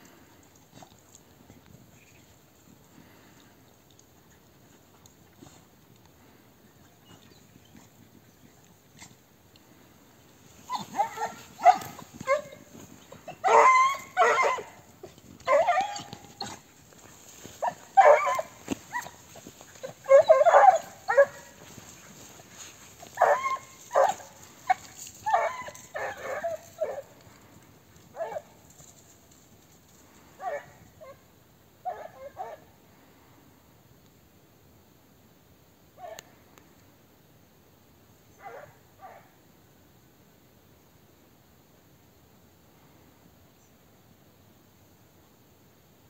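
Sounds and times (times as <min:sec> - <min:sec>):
hounds barking and yelping: 0:10.6 - 0:27.4, 0:28.0 - 0:29.4, 0:30.3 - 0:31.2, 0:31.8 - 0:32.7, 0:38.4 - 0:39.3.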